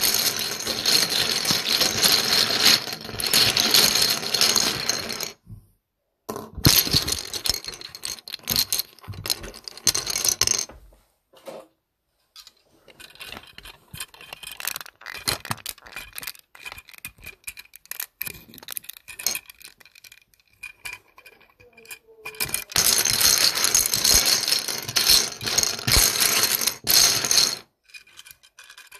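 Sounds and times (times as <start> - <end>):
plastic bricks clattering: 0.0 - 5.4, 6.3 - 10.7, 12.4 - 28.9.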